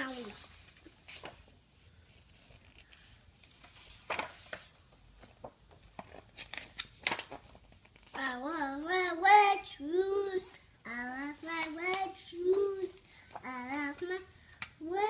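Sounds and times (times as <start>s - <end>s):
book pages rustling and flipping: 0.0s - 9.2s, 11.3s - 14.8s
toddler singing: 8.2s - 15.0s.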